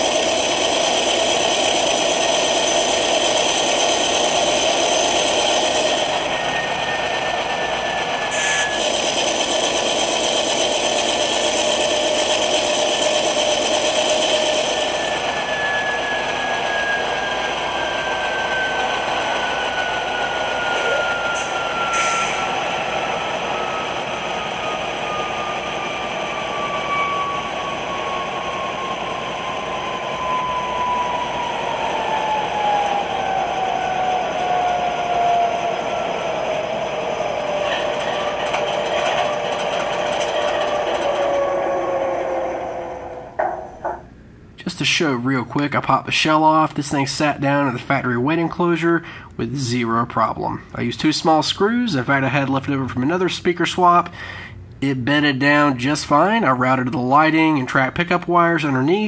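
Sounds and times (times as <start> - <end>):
model locomotive engine drone: 0.0 - 44.0
turbocharger whine: 0.0 - 44.2.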